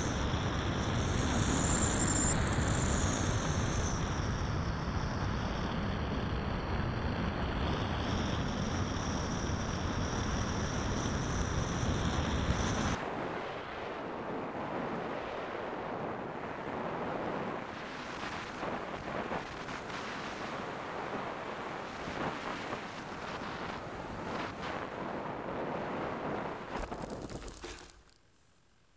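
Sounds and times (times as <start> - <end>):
wind rushing over microphone: 0.0 - 27.5.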